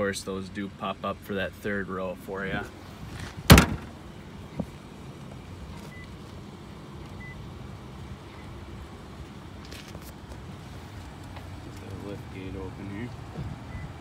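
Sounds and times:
car hatch glass slamming: 3.4s - 4.0s.

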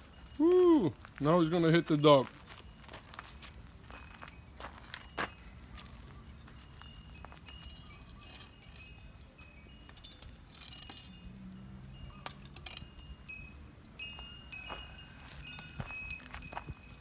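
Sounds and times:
high metallic chime tones: 0.0s - 17.0s.

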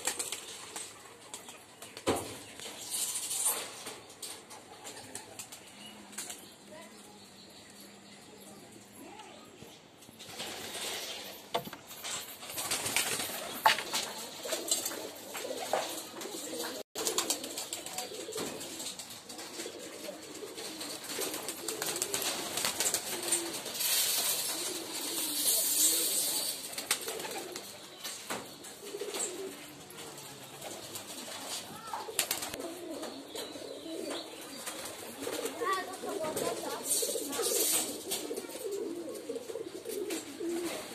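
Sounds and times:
wings flapping: 0.0s - 6.4s, 10.1s - 33.2s, 33.9s - 40.9s
pigeons cooing: 10.2s - 40.9s.

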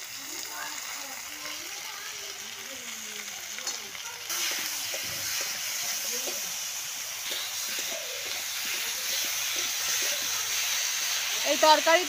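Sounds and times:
food sizzling in hot oil: 0.0s - 12.0s
metal spoon scraping a pan: 3.6s - 11.9s.

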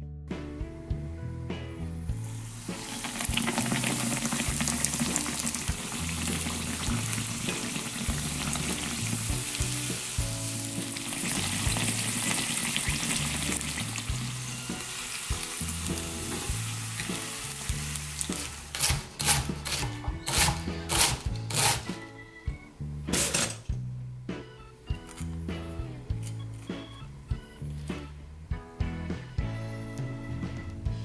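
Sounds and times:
cutlet sizzling in hot oil: 2.2s - 21.9s
knife shredding on cutting board: 18.2s - 21.9s.

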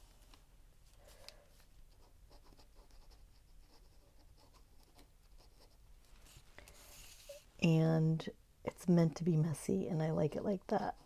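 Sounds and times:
pen scratching on paper: 1.9s - 5.8s.

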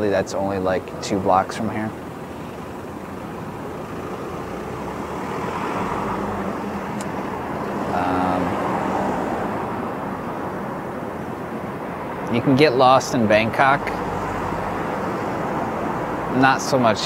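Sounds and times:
vehicle passing: 0.0s - 17.0s.

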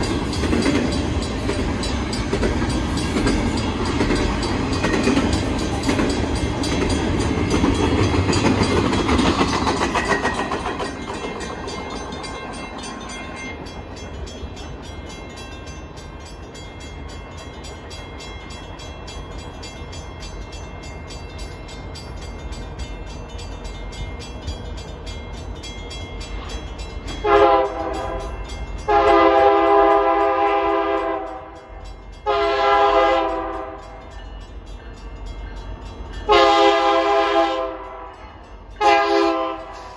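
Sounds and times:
train wheels rolling past: 0.0s - 39.9s
locomotive air horn blasts: 27.2s - 31.6s, 32.2s - 33.9s, 36.3s - 38.1s, 38.8s - 39.9s.

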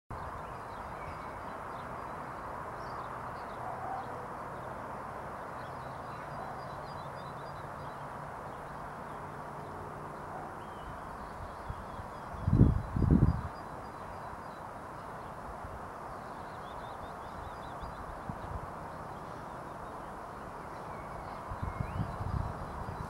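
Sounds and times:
faint bird chirps: 16.1s - 23.0s.

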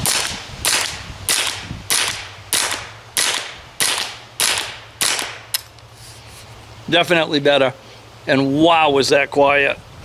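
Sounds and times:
suppressed rifle shots: 0.0s - 5.7s.

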